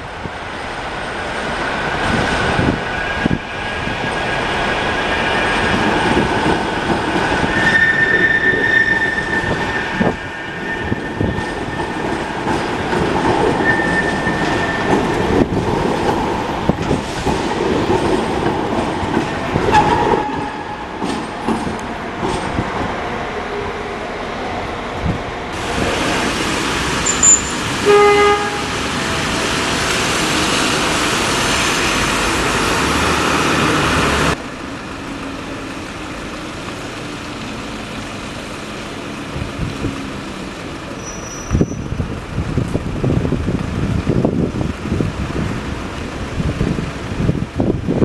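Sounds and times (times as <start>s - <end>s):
traffic noise: 0.0s - 48.0s
car horn toot: 27.1s - 28.7s.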